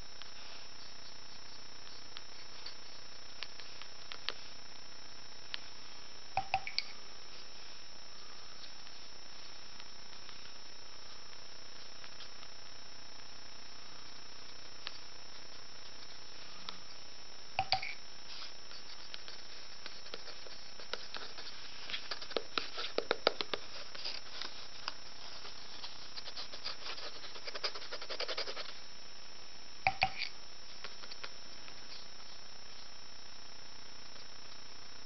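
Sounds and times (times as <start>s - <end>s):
steady low hiss: 0.0s - 35.0s
pen scratching and tapping on paper: 0.8s - 4.4s, 18.7s - 28.7s.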